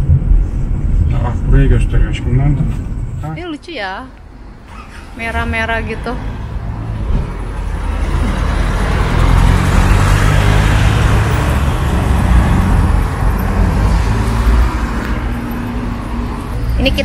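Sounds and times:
minibus driving past: 4.3s - 17.0s
car driving past: 4.6s - 17.0s.

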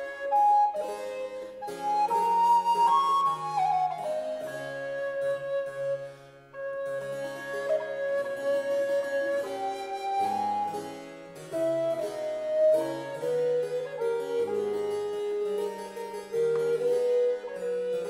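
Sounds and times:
recorder melody: 0.0s - 18.0s
harpsichord bass line: 6.7s - 18.0s.

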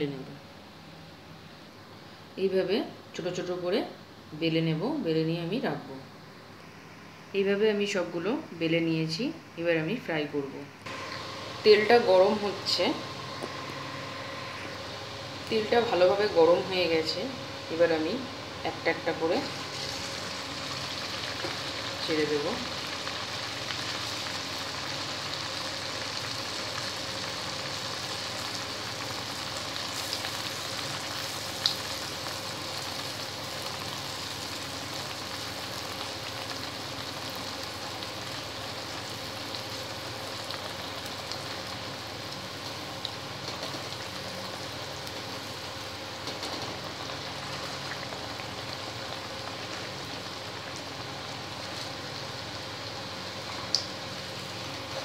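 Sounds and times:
dough deep-frying in hot oil: 10.4s - 55.0s.

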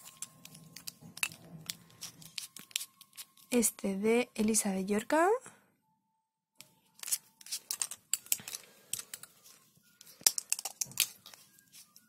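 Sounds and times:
plastic cases clicking: 10.2s - 11.3s.

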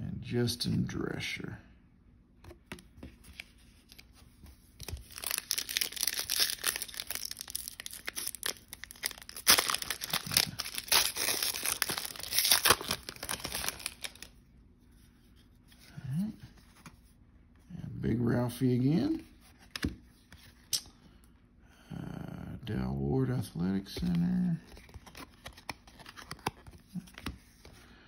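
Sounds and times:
foil wrapper tearing and crinkling: 4.8s - 14.3s.

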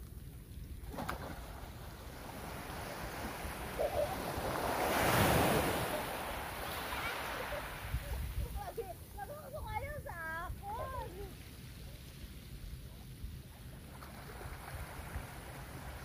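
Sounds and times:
waves breaking on pebble beach: 2.0s - 8.7s.

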